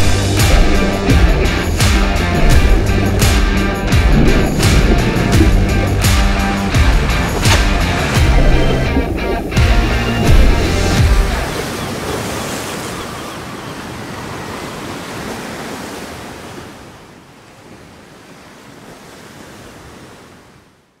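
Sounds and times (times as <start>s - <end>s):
background music: 0.0s - 11.7s
ocean surf rushing: 0.0s - 20.5s.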